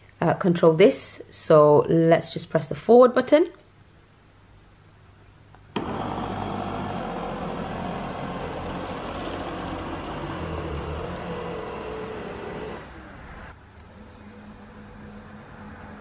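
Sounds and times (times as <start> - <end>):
robot vacuum fan whirring: 5.8 - 13.5.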